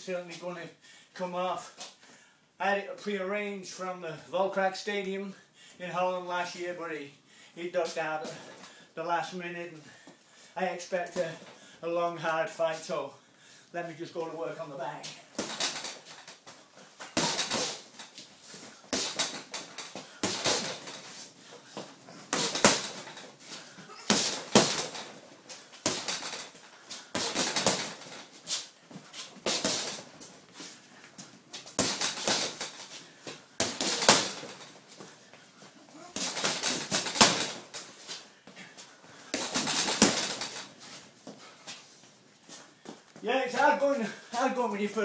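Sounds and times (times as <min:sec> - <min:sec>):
punches slapping a punch bag: 0:15.4 - 0:16.0, 0:17.0 - 0:18.0, 0:18.9 - 0:21.1, 0:21.8 - 0:23.2, 0:23.9 - 0:25.2, 0:25.8 - 0:26.5, 0:27.1 - 0:28.3, 0:29.4 - 0:30.1, 0:31.6 - 0:32.9, 0:33.6 - 0:34.6, 0:36.1 - 0:37.8, 0:39.4 - 0:40.7.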